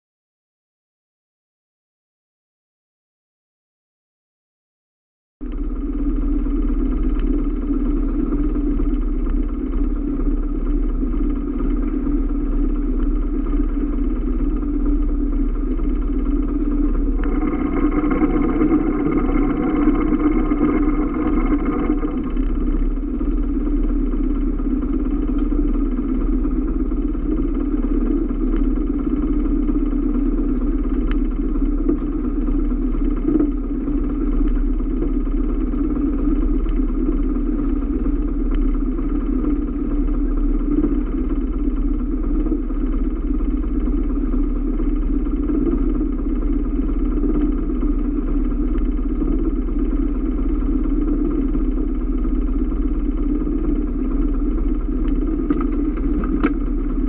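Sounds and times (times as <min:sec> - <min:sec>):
boat engine humming: 0:05.5 - 0:57.0.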